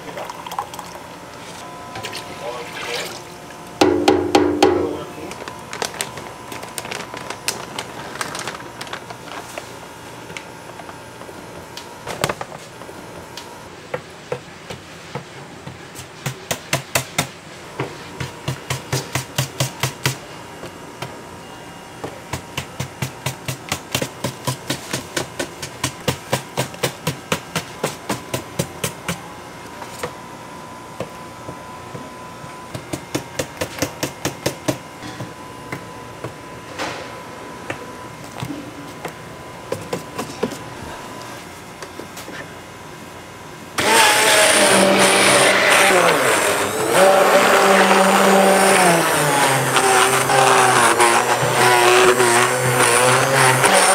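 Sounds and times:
loud knock: 0:03.8 - 0:05.0.

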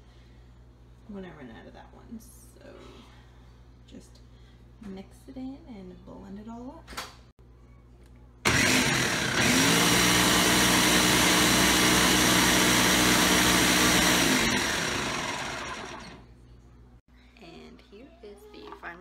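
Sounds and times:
blender motor whirring: 0:08.5 - 0:16.2.

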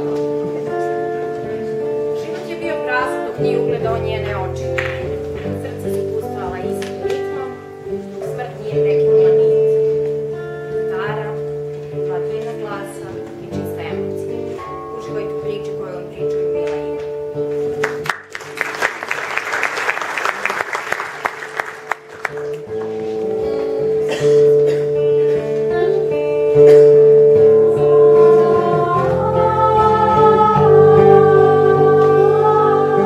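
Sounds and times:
acoustic guitar chords: 0:00.0 - 0:33.0
audience applause: 0:17.8 - 0:23.0
women singing in harmony: 0:27.4 - 0:33.0.

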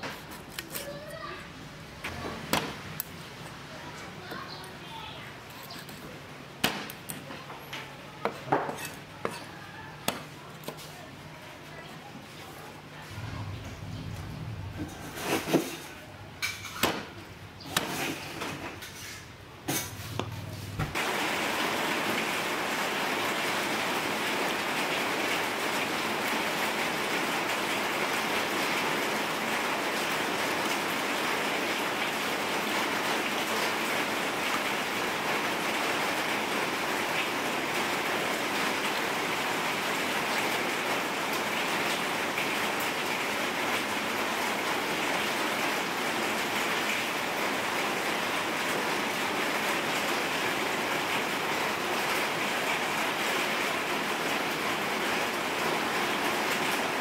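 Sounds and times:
cleaver chopping on wood: 0:06.6 - 0:07.0.

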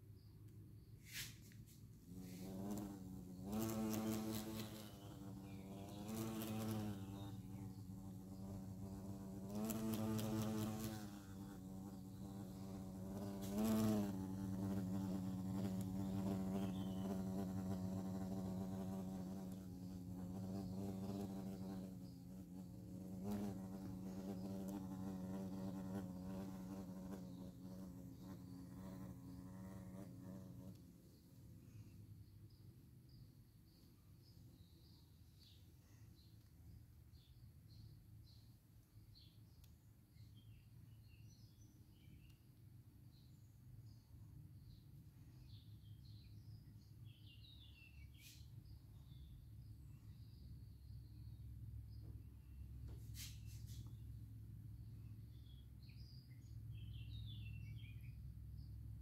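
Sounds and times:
hornet buzzing in flight: 0:02.0 - 0:30.8.

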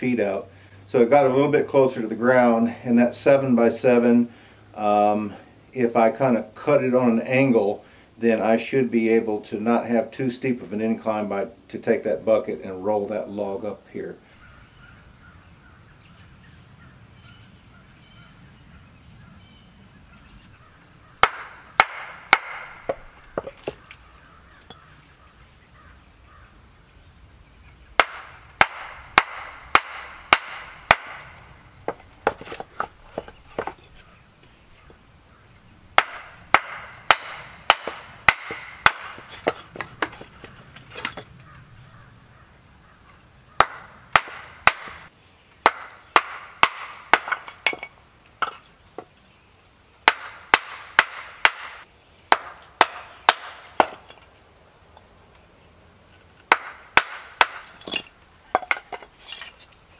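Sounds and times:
mallet knocking on hatchet: 0:21.2 - 0:23.8, 0:28.0 - 0:31.3, 0:33.2 - 0:33.8, 0:36.0 - 0:40.4, 0:43.6 - 0:45.0.

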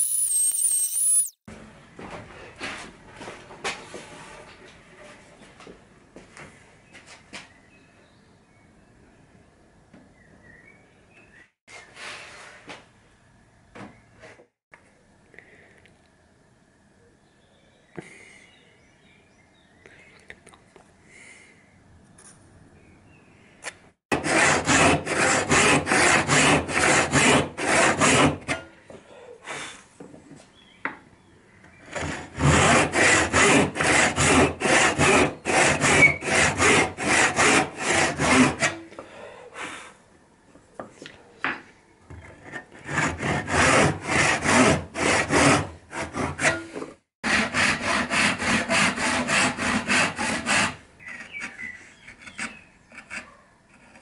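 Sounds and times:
backsaw cutting wood: 0:00.0 - 0:01.4, 0:24.1 - 0:28.6, 0:31.9 - 0:38.9, 0:42.7 - 0:51.7.

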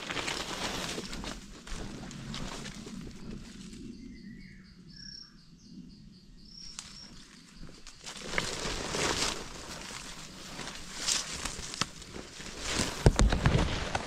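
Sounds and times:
footsteps through dry leaves: 0:00.0 - 0:03.8, 0:07.9 - 0:14.0
high pulsing insect call: 0:00.0 - 0:13.1
faint bird chirps: 0:02.9 - 0:08.3.

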